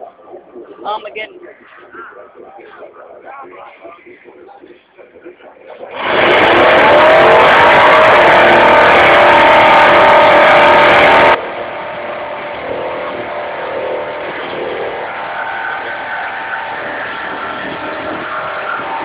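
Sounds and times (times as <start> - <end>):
car engine at high revs: 5.9 - 19.0.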